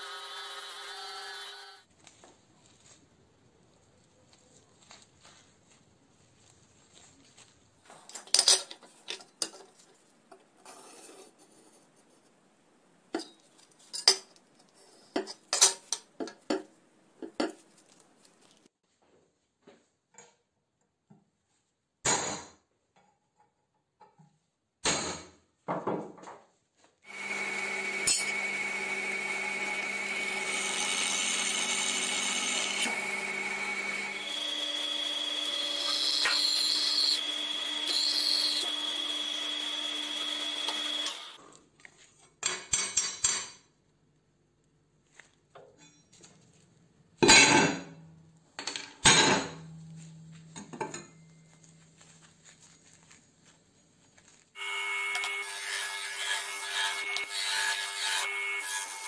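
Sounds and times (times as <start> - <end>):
drill press motor whine: 27.1 - 41.4, 54.6 - 55.4.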